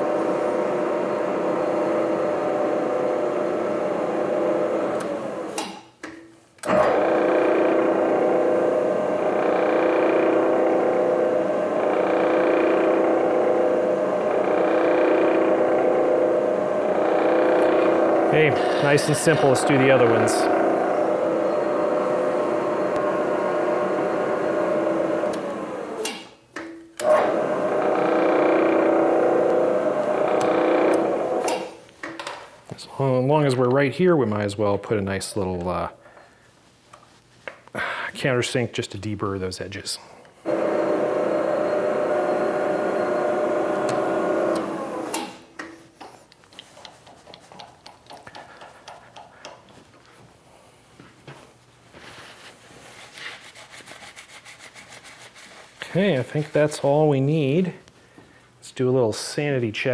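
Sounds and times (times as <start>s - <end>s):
milling machine whine: 0.0s - 5.6s, 6.6s - 26.3s, 27.0s - 31.7s, 40.4s - 45.4s.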